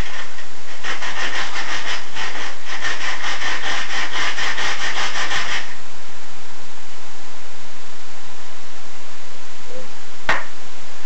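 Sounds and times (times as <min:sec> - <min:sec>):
rapid scraping scrubbing metal: 0:00.0 - 0:05.8.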